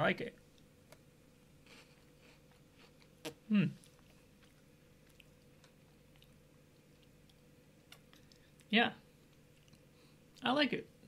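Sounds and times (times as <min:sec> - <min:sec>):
chewing biscuit stick: 0:01.7 - 0:09.9
person humming: 0:03.5 - 0:03.8.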